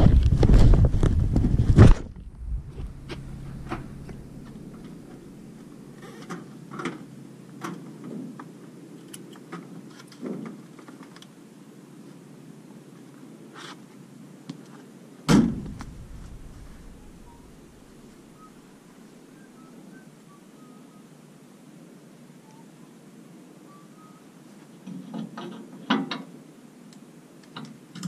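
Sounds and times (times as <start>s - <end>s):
loud thump: 1.3s - 5.6s, 15.3s - 18.4s.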